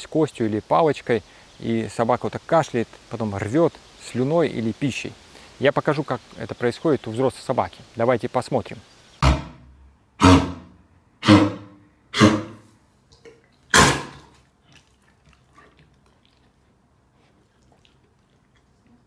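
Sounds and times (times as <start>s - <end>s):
dog coughing harshly: 13.7s - 14.2s.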